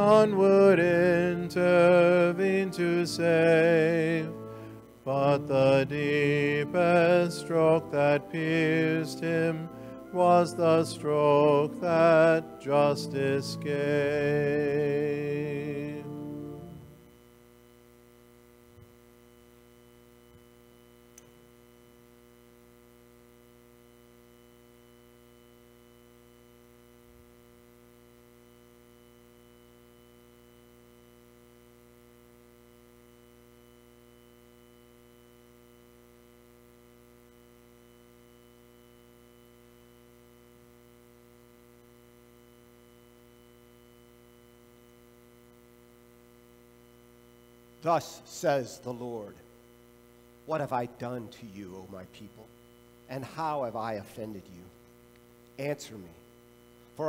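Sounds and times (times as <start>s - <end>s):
person singing a hymn: 0.0s - 17.0s, 47.8s - 49.4s
electrical mains hum: 0.0s - 57.0s.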